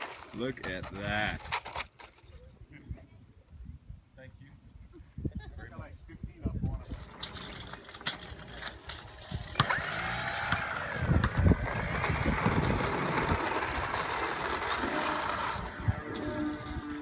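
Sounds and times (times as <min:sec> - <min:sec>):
model airplane motor whining: 0:07.2 - 0:17.0.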